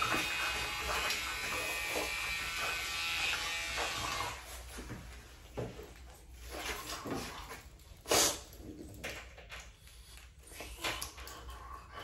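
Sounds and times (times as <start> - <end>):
electric grooming tool buzzing: 0.0 - 4.7.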